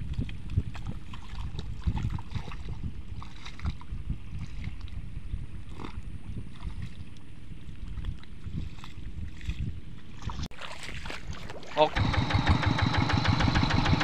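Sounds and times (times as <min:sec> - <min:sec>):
mud and water sloshing: 0:00.0 - 0:14.0
diesel engine running: 0:12.0 - 0:14.0.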